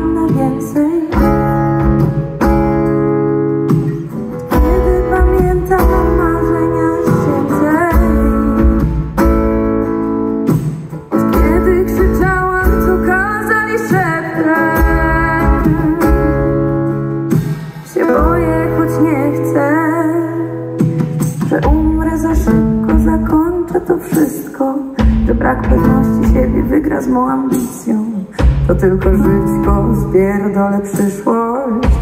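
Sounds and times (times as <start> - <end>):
person singing: 0.0 - 3.0, 3.9 - 9.2, 11.1 - 32.0
acoustic guitar strumming: 0.0 - 32.0.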